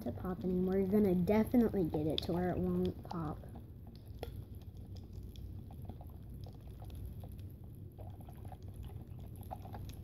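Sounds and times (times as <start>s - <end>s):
popping candy crackling: 0.0s - 10.0s
straw stirring in plastic cup: 0.2s - 10.0s.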